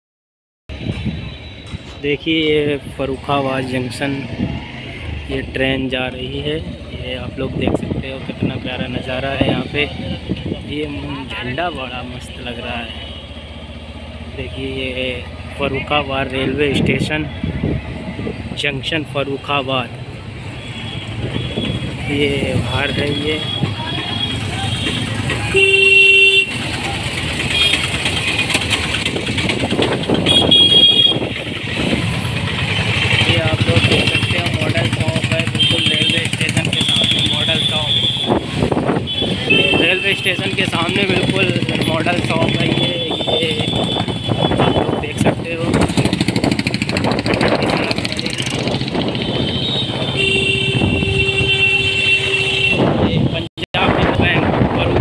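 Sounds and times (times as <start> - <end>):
road noise: 0.7 - 55.0
street traffic: 0.7 - 55.0
motorcycle engines running: 2.4 - 53.0
motorcycle engine running: 24.2 - 44.3, 45.4 - 50.4
vehicle horn held note: 49.5 - 52.9.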